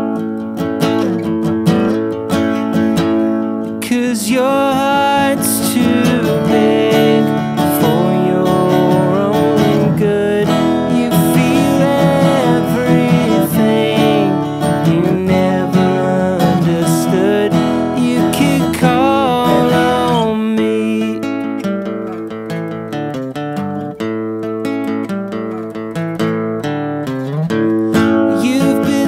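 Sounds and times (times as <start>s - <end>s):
strummed acoustic guitar: 0.0s - 29.0s
man singing: 3.7s - 21.7s, 27.9s - 29.0s.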